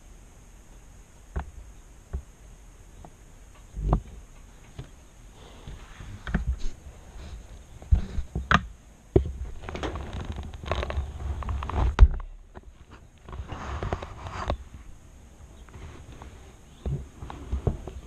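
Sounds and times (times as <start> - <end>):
rustling: 1.0 - 18.0
sharp knocks and thumps: 1.3 - 2.3, 3.0 - 5.0, 7.8 - 14.6.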